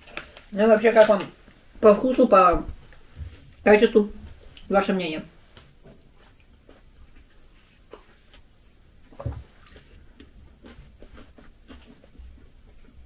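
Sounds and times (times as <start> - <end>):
wrapped sweets crinkling: 0.0 - 1.4.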